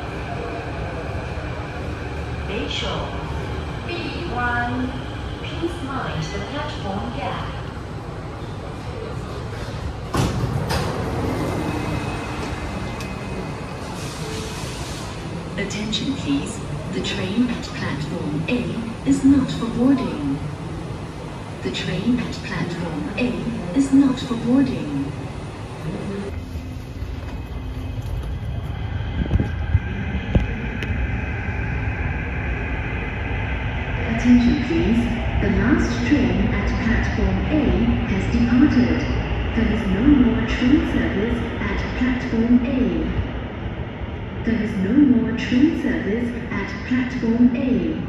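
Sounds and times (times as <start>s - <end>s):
stopped train noise: 0.0s - 47.8s
train doors sliding open: 9.5s - 15.3s.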